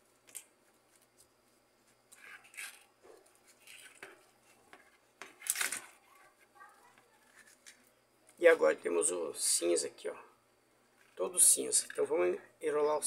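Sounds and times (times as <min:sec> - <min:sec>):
wires rustling: 0:00.0 - 0:09.0.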